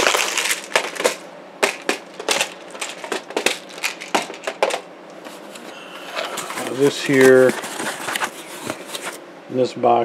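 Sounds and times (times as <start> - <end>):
plastic boxes clacking and rattling: 0.0 - 4.9.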